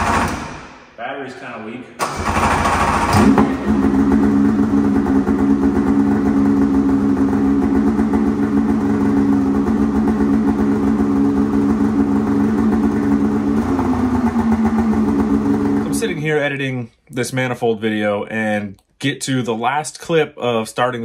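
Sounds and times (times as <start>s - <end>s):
snowmobile engine idling: 3.2s - 16.1s.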